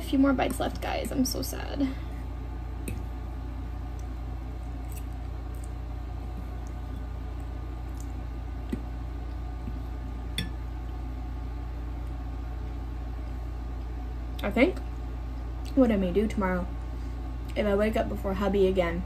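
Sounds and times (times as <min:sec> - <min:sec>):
steady low hum: 0:00.0 - 0:19.0
soft eating sounds: 0:01.8 - 0:11.3, 0:11.9 - 0:15.8.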